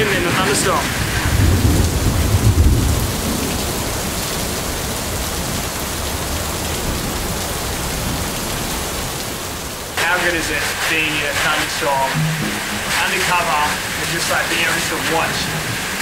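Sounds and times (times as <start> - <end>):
heavy rain pouring on paving: 0.0 - 16.0.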